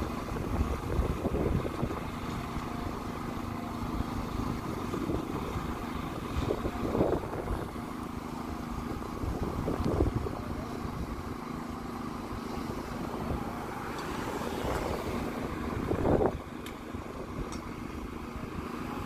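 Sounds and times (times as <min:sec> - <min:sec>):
emergency vehicle engines idling: 0:00.0 - 0:19.0.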